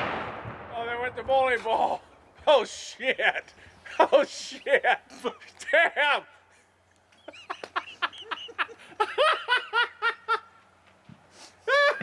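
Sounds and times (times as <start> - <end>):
high-pitched laughter: 11.7 - 12.0.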